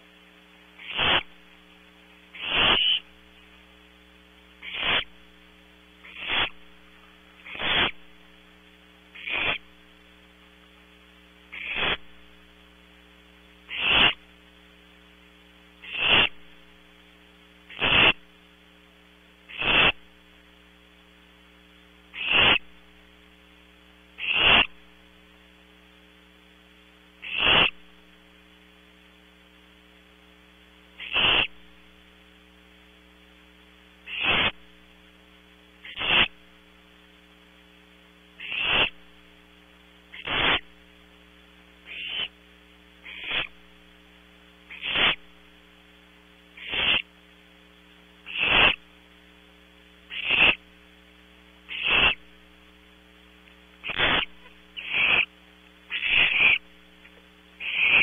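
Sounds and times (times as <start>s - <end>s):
electrical mains hum: 0.0s - 58.0s
owlets rasping hiss calls: 0.8s - 1.5s, 2.3s - 3.2s, 4.6s - 5.3s, 6.0s - 8.1s, 9.1s - 9.8s, 11.5s - 12.2s, 13.6s - 14.3s, 15.8s - 16.6s, 17.7s - 18.2s, 19.5s - 20.0s, 22.1s - 22.7s, 24.2s - 24.8s, 27.2s - 27.8s, 31.0s - 31.6s, 34.0s - 34.6s, 35.8s - 36.4s, 38.4s - 39.1s, 40.1s - 40.8s, 41.8s - 42.4s, 43.0s - 43.6s, 44.7s - 45.3s, 46.5s - 47.1s, 48.2s - 48.8s, 50.1s - 50.6s, 51.7s - 52.3s, 53.8s - 56.7s, 57.6s - 58.0s.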